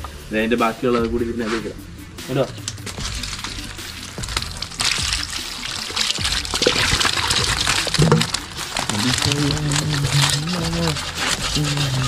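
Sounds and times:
water pouring and splashing: 0:02.4 - 0:12.0.

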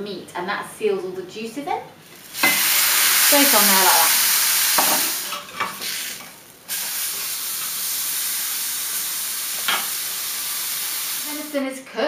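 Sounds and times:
meat sizzling in a frying pan: 0:02.0 - 0:11.6.

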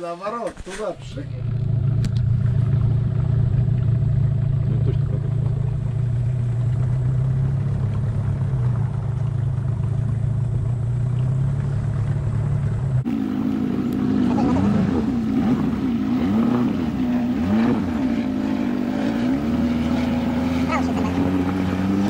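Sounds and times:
vehicle engine droning: 0:01.0 - 0:22.0.

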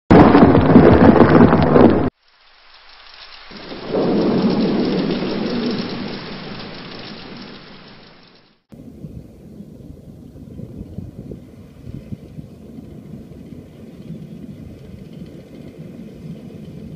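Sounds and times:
thunder rumbling: 0:00.1 - 0:02.2, 0:03.4 - 0:16.9
rain: 0:00.1 - 0:09.1.

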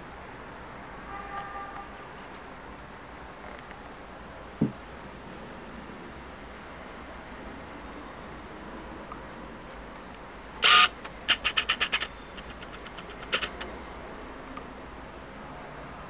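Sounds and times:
thermostat dial clicking: 0:10.6 - 0:13.7.

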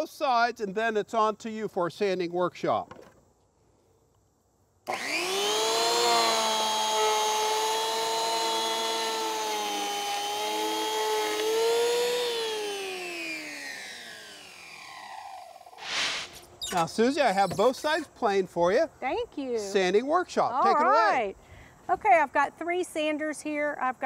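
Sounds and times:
electric power planer whine: 0:04.9 - 0:16.0.

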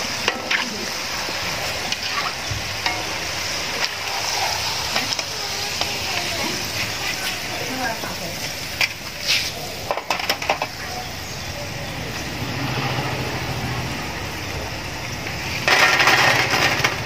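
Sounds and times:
fries sizzling in oil: 0:00.0 - 0:17.0
rush of noise: 0:11.2 - 0:17.0.

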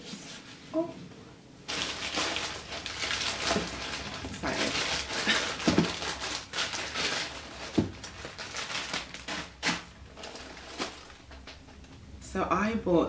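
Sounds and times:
plastic bag crinkling: 0:01.7 - 0:12.0.

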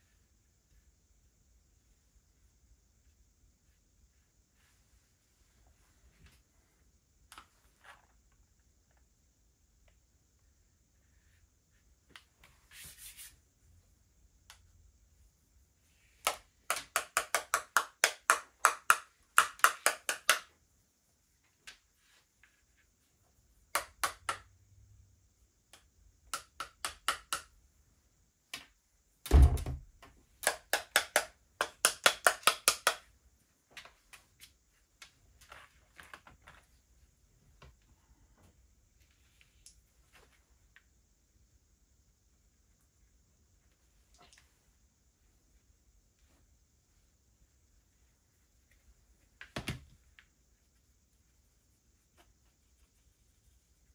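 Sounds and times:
heavy thump: 0:29.3 - 0:29.8.

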